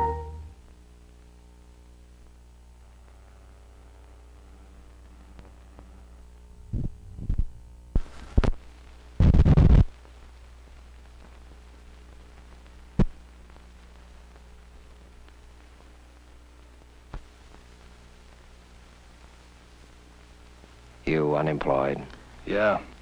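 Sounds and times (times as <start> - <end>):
low electrical hum: 0.0 - 23.0
film pops and crackles: 0.6 - 23.0
burst of noise: 6.7 - 10.2.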